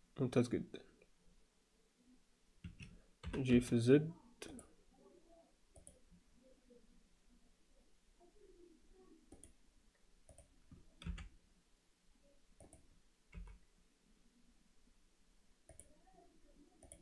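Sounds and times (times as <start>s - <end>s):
computer mouse clicks: 5.7s - 6.0s, 9.3s - 9.6s, 10.2s - 11.3s, 12.6s - 13.6s, 15.7s - 16.0s, 16.8s - 17.0s
keyboard key presses: 10.3s - 11.3s, 12.6s - 13.6s.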